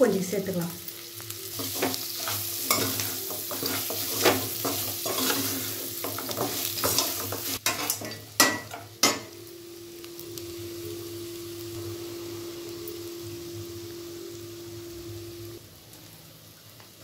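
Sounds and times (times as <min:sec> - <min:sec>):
meat sizzling in pan: 0:00.0 - 0:17.0
metal spatula scraping pan: 0:01.6 - 0:08.8.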